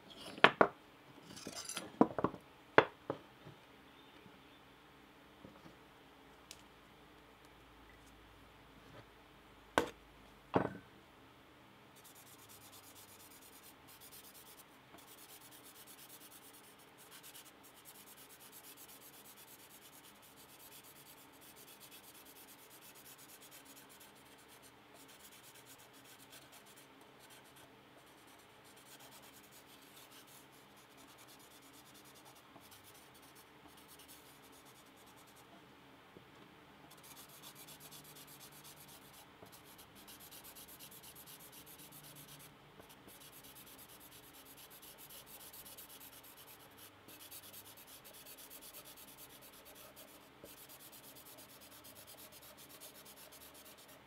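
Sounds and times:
marker rubbing on metal: 12.0s - 35.4s, 36.9s - 54.0s.

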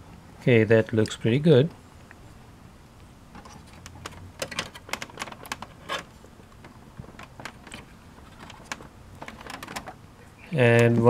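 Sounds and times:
fingers clicking computer parts: 3.4s - 10.0s.

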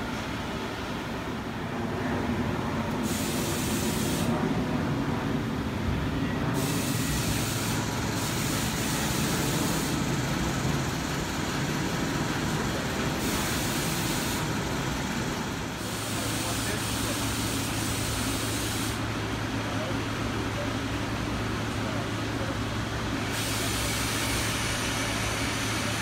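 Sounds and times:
industrial rumble: 0.0s - 26.0s
traffic rumble: 0.0s - 26.0s
high hiss: 6.6s - 11.6s.

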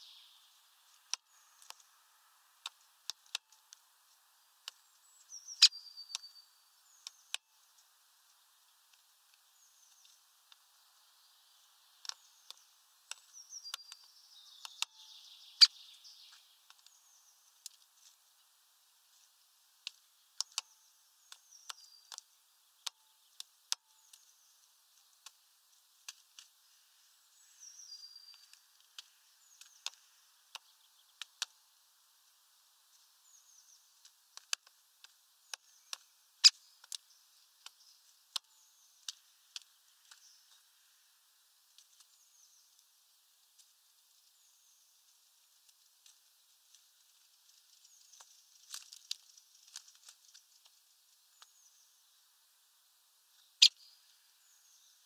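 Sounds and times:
short high bird chirps: 5.3s - 6.4s.

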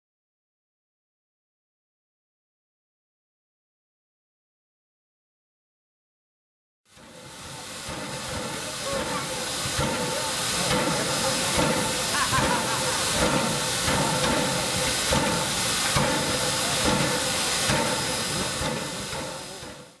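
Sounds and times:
steam locomotive hissing steam: 6.9s - 20.0s.

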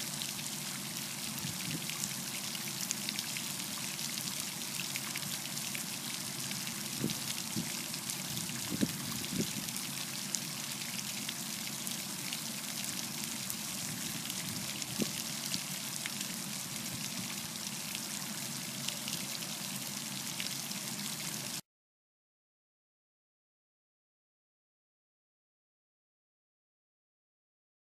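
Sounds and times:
fountain water falling into pool: 0.0s - 21.6s.

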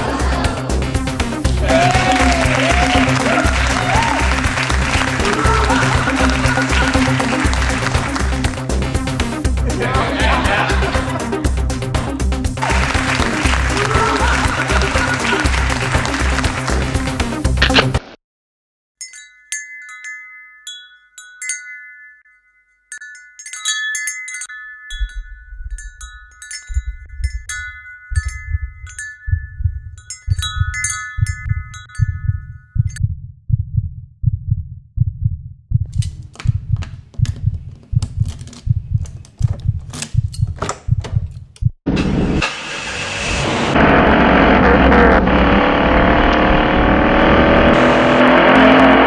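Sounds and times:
wind chimes tinkling: 19.0s - 33.0s
low heartbeat-like thumps: 26.7s - 27.5s, 28.1s - 41.8s.

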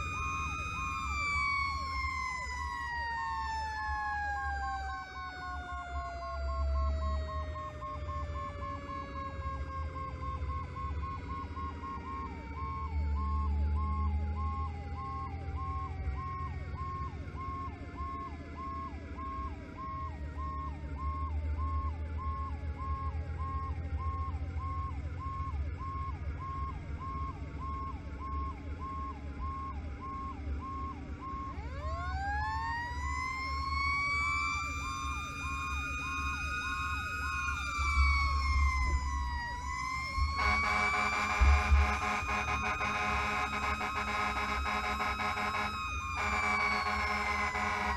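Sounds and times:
electronic siren cycling rapidly: 0.0s - 47.9s
engine and road rumble: 0.0s - 47.9s
wailing siren tone: 0.0s - 47.9s
loud horn blast: 40.3s - 47.9s.

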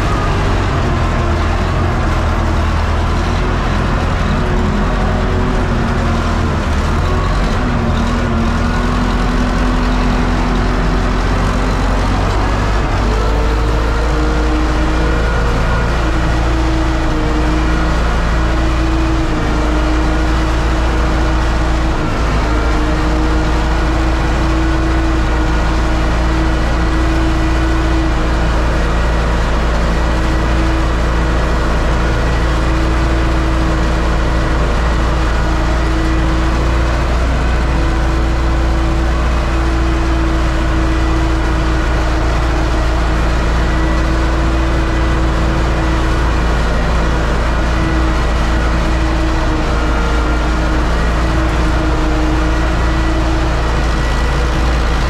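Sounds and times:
steady whining tone: 0.0s - 55.0s
tractor diesel engine under load: 0.0s - 55.0s.

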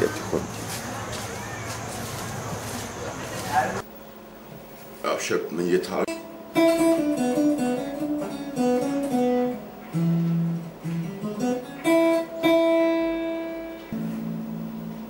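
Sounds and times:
acoustic guitar plucked melody: 6.1s - 15.0s.

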